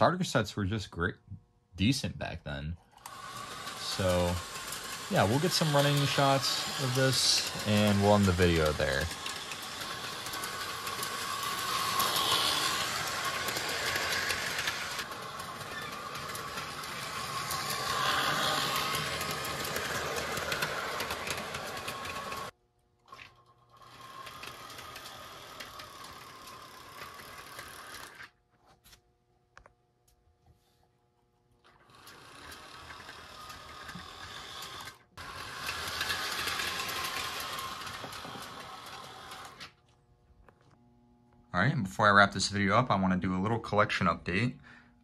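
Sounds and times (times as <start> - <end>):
toy train motor whirring: 2.8 - 28.4, 31.6 - 39.8
wheels rattling on track: 3.1 - 22.5, 35.2 - 39.5.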